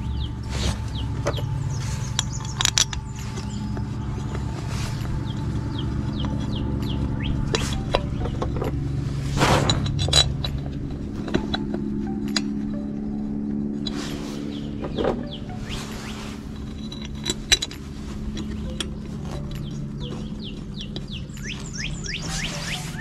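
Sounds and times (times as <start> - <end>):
steady low hum: 0.0 - 23.0
metal clicks and knocks: 1.2 - 8.9, 9.7 - 12.8, 16.5 - 21.6.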